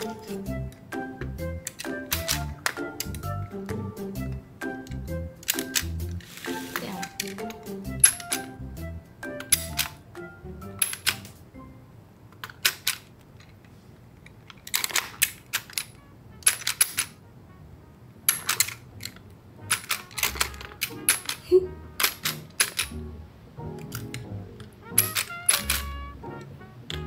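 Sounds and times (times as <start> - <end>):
soft background music: 0.0 - 12.1, 15.5 - 27.0
plastic toy clicks and clacks: 1.6 - 3.3, 4.8 - 8.6, 9.4 - 10.0, 10.8 - 11.4, 12.3 - 17.2, 18.3 - 23.0, 23.8 - 26.0.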